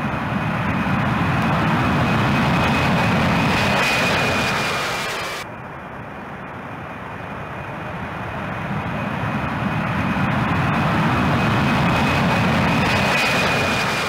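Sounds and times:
faint high whine: 0.0 - 14.0
jet engine rushing: 0.0 - 14.0.

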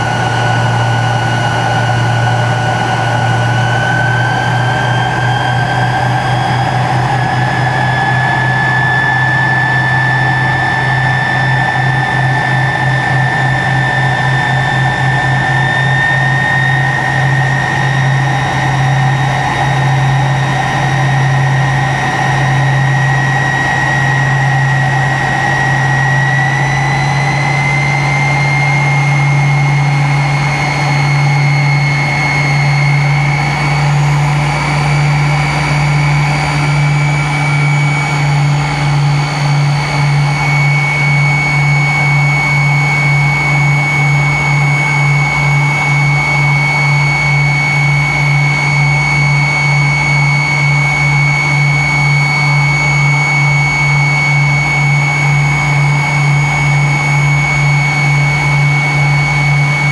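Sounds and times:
jet engines whining: 0.0 - 59.9
low pulsing hum: 0.0 - 59.9.

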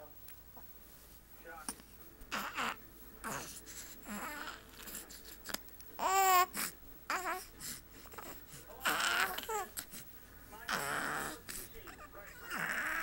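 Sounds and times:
baby cooing and babbling: 2.3 - 5.0, 6.0 - 10.0, 10.7 - 13.0.

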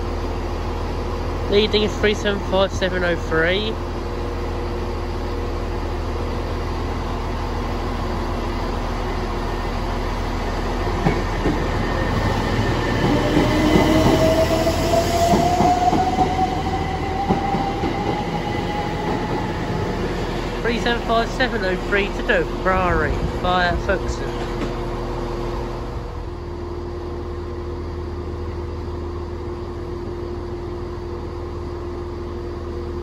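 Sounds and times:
electric train motor whine: 3.1 - 27.4.

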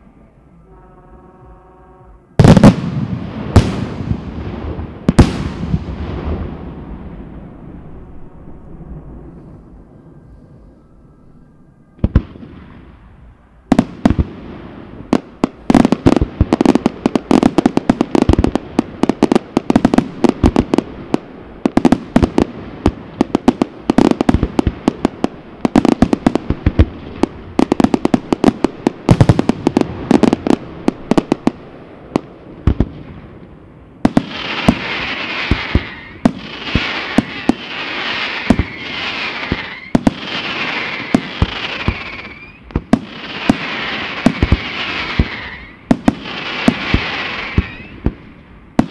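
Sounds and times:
firework bangs: 2.4 - 9.8, 12.0 - 33.4, 34.0 - 48.9
firework hissing crackle: 34.0 - 48.9.

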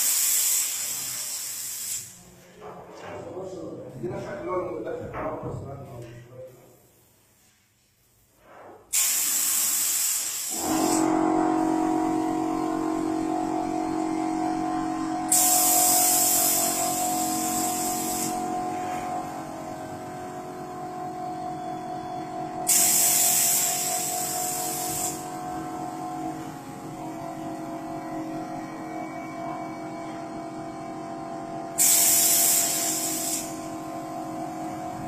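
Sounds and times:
paint spray gun hissing: 0.0 - 2.1, 9.0 - 11.0, 15.3 - 18.4, 22.7 - 25.2, 31.8 - 33.7
steady motor hum: 10.6 - 35.0.

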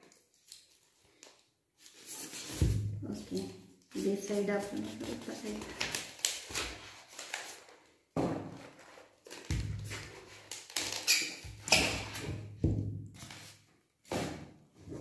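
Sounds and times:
knocks and thuds on table: 8.2 - 8.6, 12.2 - 13.0.

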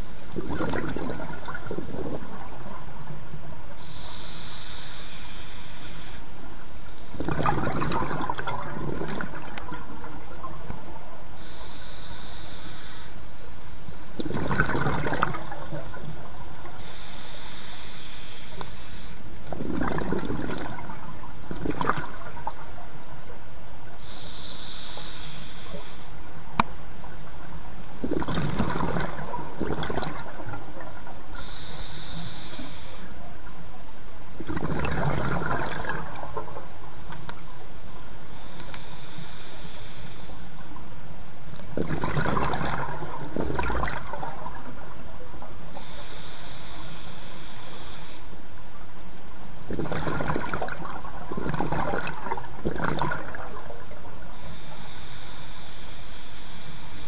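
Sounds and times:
exhaled bubbles: 0.0 - 4.2, 7.0 - 11.8, 14.1 - 17.1, 19.4 - 22.9, 27.9 - 32.8, 34.3 - 37.5, 41.6 - 46.2, 49.7 - 54.6
regulator hissing inhale: 3.8 - 6.3, 11.4 - 13.3, 16.8 - 19.3, 24.0 - 26.1, 31.3 - 33.1, 38.3 - 40.4, 45.7 - 48.3, 54.3 - 57.0.

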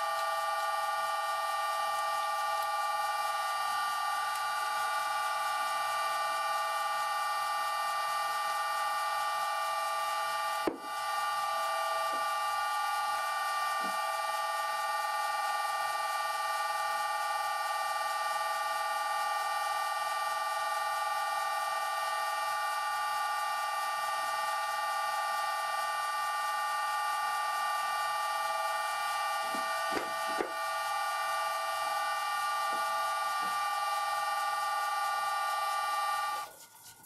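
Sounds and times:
lathe spindle whine: 0.0 - 36.6.

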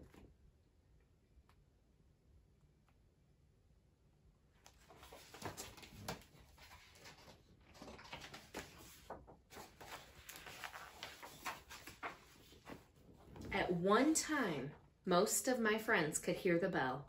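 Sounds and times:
book pages rustling and flapping: 4.6 - 13.6.

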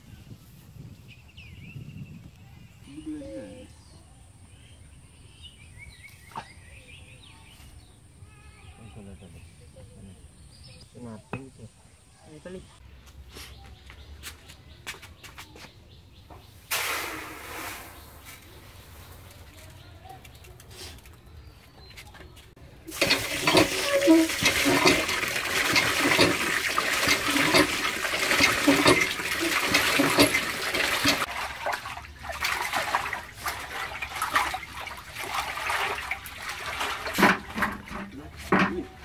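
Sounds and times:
hands washing rice in water: 22.9 - 39.0
water gushing from a hand pump: 22.9 - 39.0.

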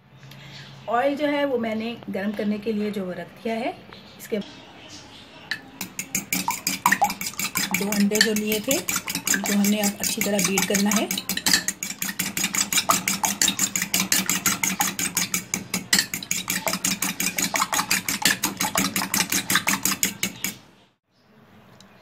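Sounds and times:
whisk clicking against bowl: 5.5 - 20.6.

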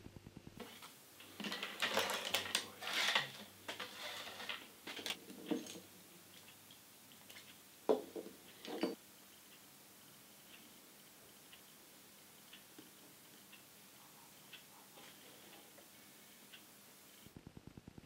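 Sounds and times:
utensils and dishes clattering: 0.6 - 5.9, 8.0 - 9.0.

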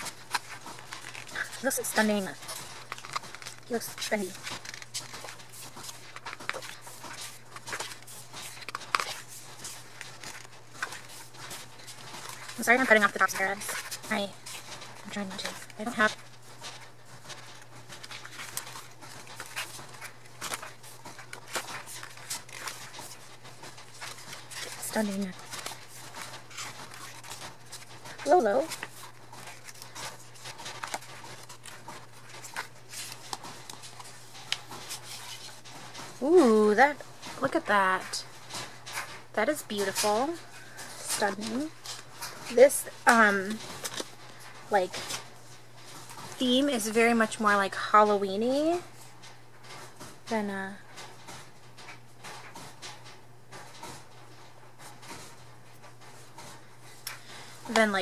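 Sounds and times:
photobook pages turning: 0.0 - 36.3, 39.8 - 47.1.

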